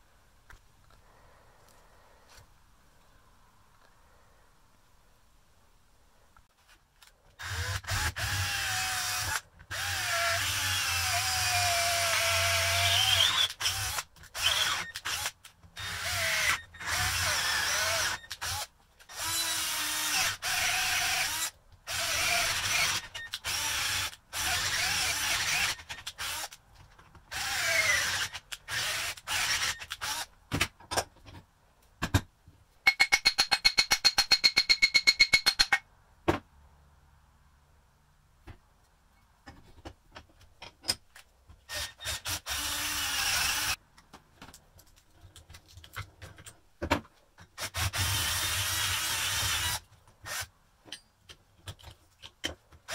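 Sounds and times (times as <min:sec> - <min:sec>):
cordless drill boring wood: 0:07.4 - 0:26.6, 0:27.3 - 0:30.3, 0:41.7 - 0:43.8, 0:47.6 - 0:50.5.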